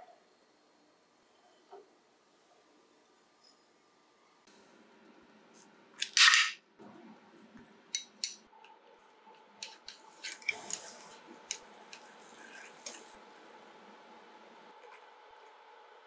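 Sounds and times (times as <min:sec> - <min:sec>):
light sizzle: 0:09.0 - 0:16.0.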